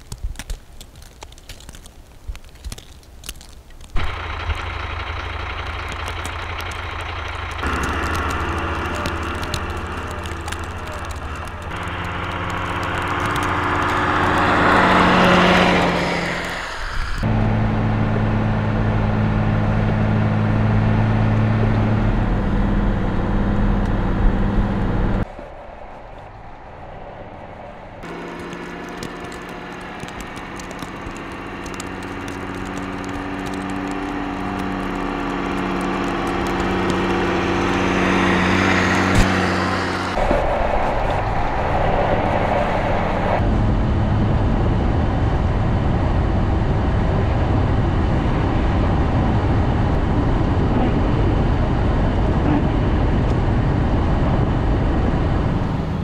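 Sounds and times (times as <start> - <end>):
clicks and crunches: 0.0 - 16.6, 28.0 - 41.2
vehicle engines running: 2.7 - 56.0
rushing swell: 36.7 - 44.6.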